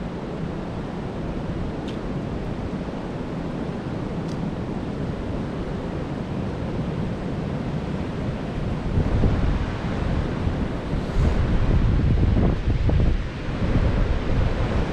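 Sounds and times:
wind buffeting microphone: 0:06.2 - 0:14.9.

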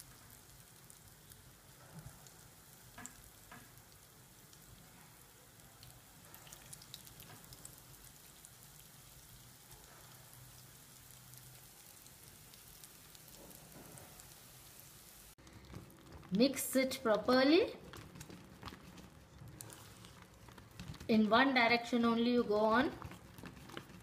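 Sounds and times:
food sizzling in hot oil: 0:00.0 - 0:15.4
oil popping: 0:15.4 - 0:21.1, 0:22.8 - 0:24.0.

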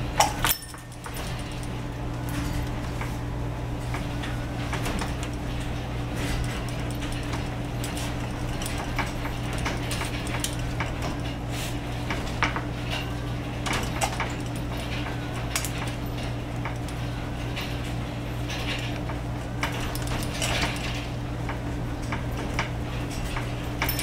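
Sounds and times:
steady low hum: 0:00.0 - 0:24.0
metallic clinks on wire cage: 0:00.2 - 0:01.7.

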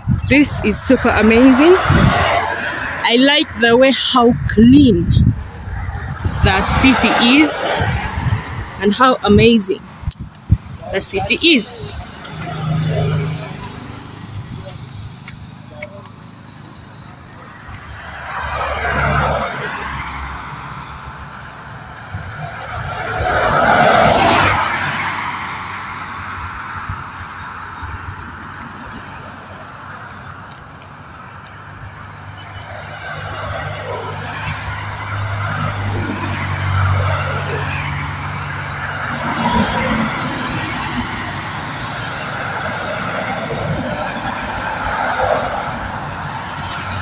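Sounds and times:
traffic engine hum: 0:00.0 - 0:47.0
vehicles passing on tarmac: 0:00.0 - 0:47.0.

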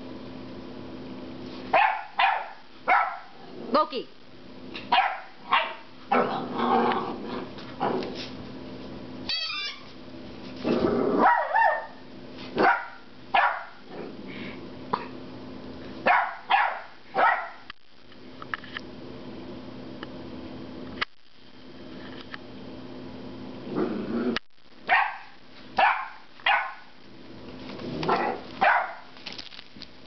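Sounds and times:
puppy barking: 0:01.7 - 0:03.4, 0:04.9 - 0:06.3, 0:11.2 - 0:12.0, 0:12.6 - 0:13.8, 0:16.0 - 0:17.7, 0:24.9 - 0:26.9, 0:28.0 - 0:29.2.

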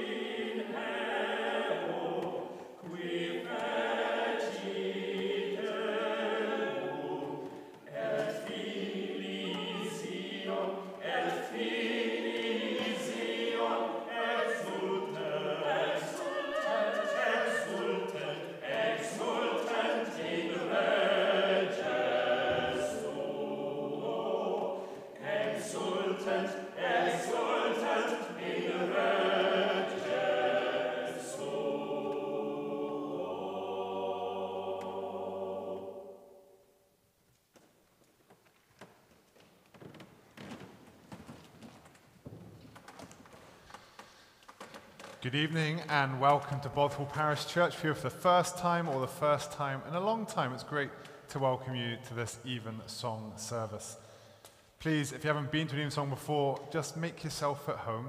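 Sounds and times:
choir singing in harmony: 0:00.0 - 0:36.9.

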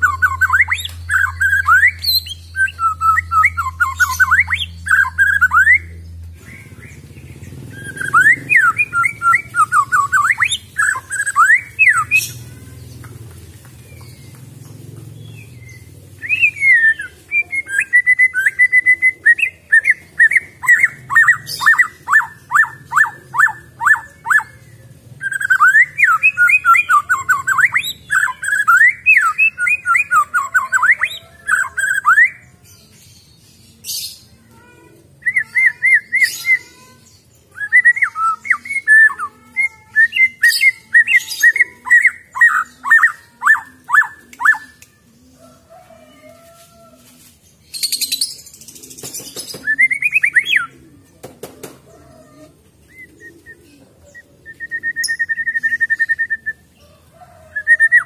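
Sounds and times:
bird singing clear whistles: 0:49.6 - 0:50.7, 0:54.4 - 0:56.6.

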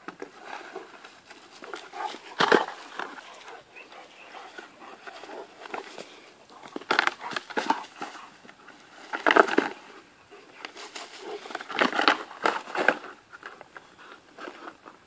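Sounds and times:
plastic pot clattering on ground: 0:01.2 - 0:03.5.

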